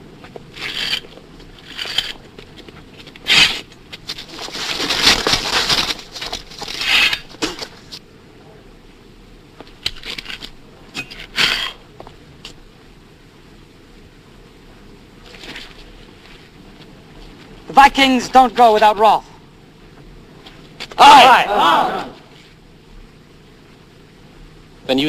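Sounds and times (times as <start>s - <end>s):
men scuffling and shuffling: 0.0s - 8.0s, 14.3s - 22.7s.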